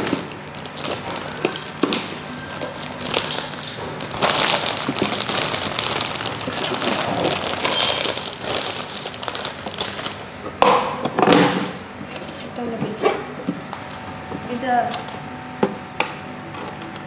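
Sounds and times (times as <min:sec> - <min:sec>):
plastic bag crinkling: 0:00.0 - 0:10.3.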